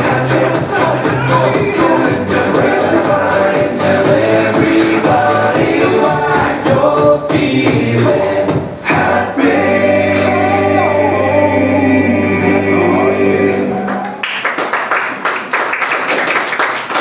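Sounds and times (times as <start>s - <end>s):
song with singing: 0.0s - 14.2s
audience applause: 13.8s - 17.0s.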